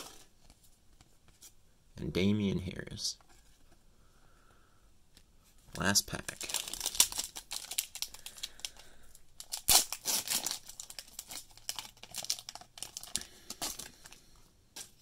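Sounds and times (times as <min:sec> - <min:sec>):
foil wrapper crinkling and tearing: 0:06.3 - 0:14.2.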